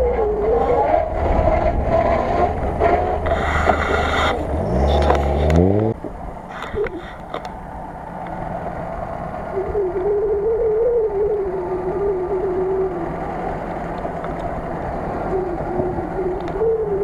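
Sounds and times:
engine revving: 0.0 - 17.0.

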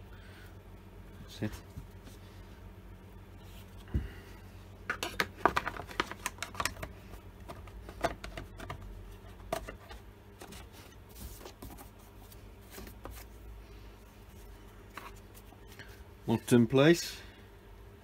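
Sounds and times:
plastic cover clicks and knocks: 4.9 - 6.9.

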